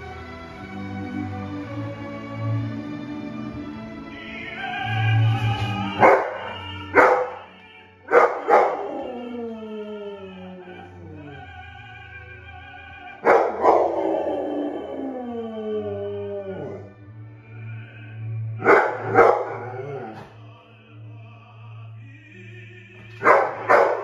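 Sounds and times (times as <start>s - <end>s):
operatic tenor singing: 0.0s - 24.0s
orchestra playing on tv: 0.0s - 24.0s
dog barking and howling: 5.9s - 11.5s, 13.1s - 16.9s, 18.6s - 20.3s, 23.2s - 24.0s.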